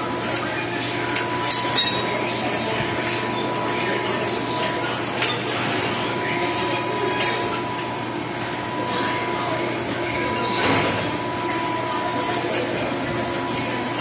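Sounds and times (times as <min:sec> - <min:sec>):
machine hum with high whine: 0:00.0 - 0:14.0
hand tools clinking on steel pipe: 0:01.5 - 0:02.1.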